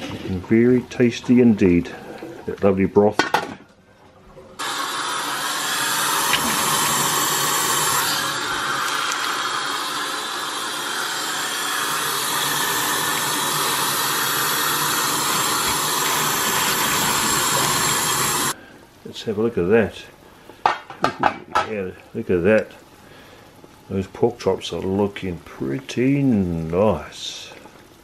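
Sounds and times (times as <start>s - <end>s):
tap water running into a sink: 4.6s - 18.6s.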